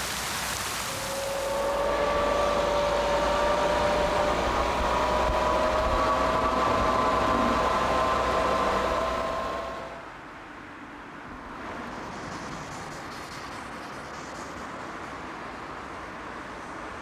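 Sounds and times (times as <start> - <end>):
road and wind noise: 0.0 - 17.0
electric scooter motor whining: 0.9 - 10.0.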